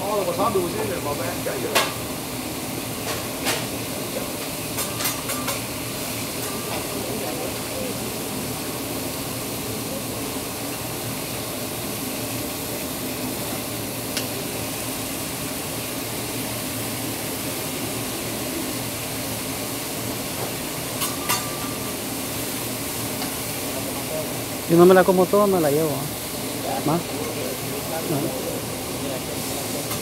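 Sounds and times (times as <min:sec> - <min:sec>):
meat and vegetables sizzling: 0:00.0 - 0:30.0.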